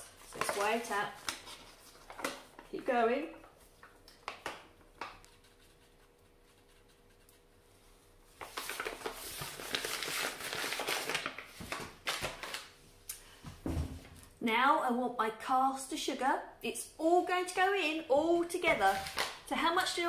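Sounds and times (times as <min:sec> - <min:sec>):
paper bag crinkling: 0:00.1 - 0:02.7, 0:08.4 - 0:12.7, 0:18.8 - 0:19.5.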